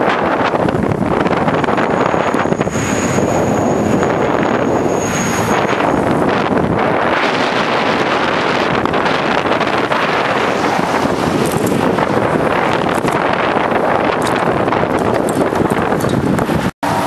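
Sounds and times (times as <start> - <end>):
wind buffeting microphone: 0.0 - 17.0
thin high whine: 1.6 - 6.4.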